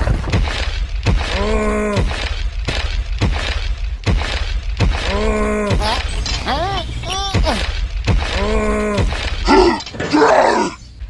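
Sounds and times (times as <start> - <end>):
sharp knocks: 0.1 - 6.4
steady low rumble: 0.1 - 9.7.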